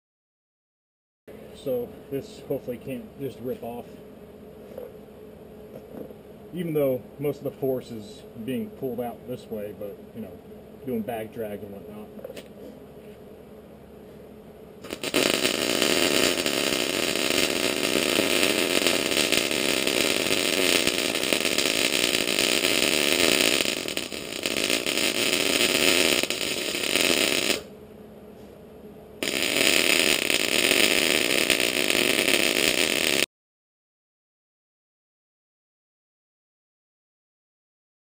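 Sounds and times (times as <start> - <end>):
welding arc crackling: 14.8 - 27.7, 29.2 - 33.3.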